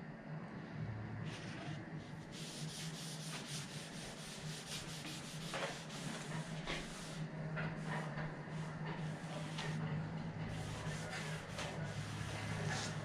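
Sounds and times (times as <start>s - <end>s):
steady low hum: 0.0s - 13.0s
cloth rag rubbing on wood: 2.3s - 7.2s, 7.8s - 9.8s, 10.5s - 13.0s.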